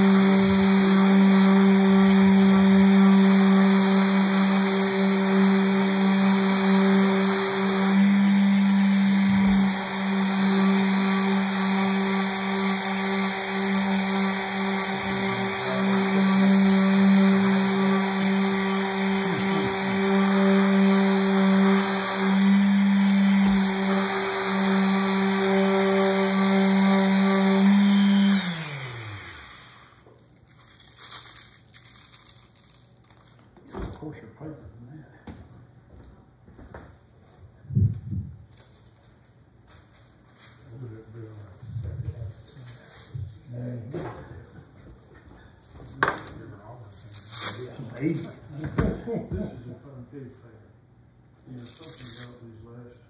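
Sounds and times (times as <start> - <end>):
orbital sander running: 0.0 - 30.0.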